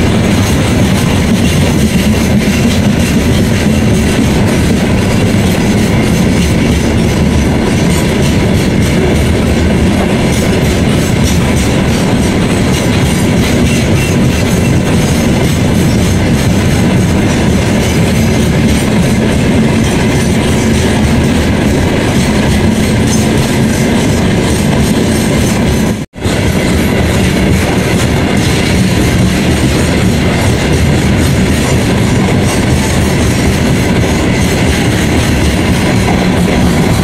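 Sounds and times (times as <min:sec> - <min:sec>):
train wheels rumbling on rails: 0:00.0 - 0:37.0.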